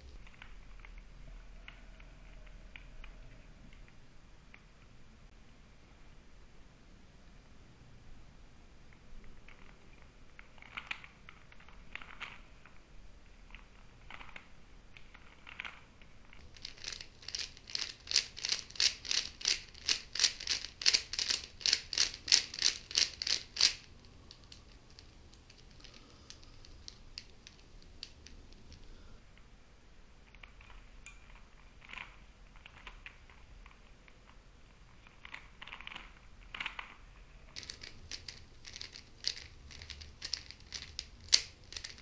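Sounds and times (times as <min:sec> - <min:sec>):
puzzle cube clacking: 0:13.5 - 0:29.2, 0:30.4 - 0:42.0.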